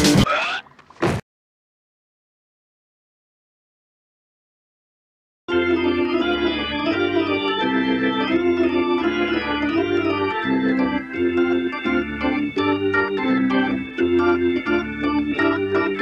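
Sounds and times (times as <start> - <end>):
organ music: 5.5 - 16.0.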